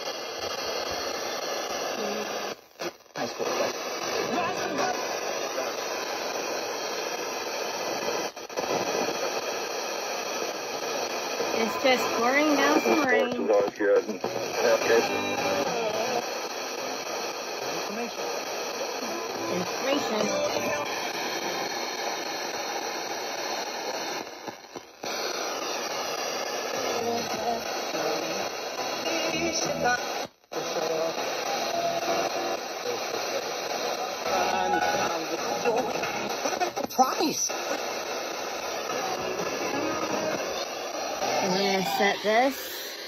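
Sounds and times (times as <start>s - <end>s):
radio static hissing: 0.0s - 43.0s.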